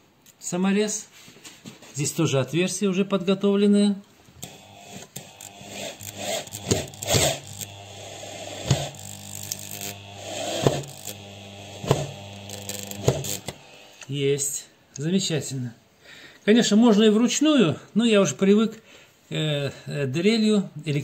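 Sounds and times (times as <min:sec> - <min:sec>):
sharp clicks: 0:04.4 - 0:07.8
electric drill motor hum: 0:04.4 - 0:14.1.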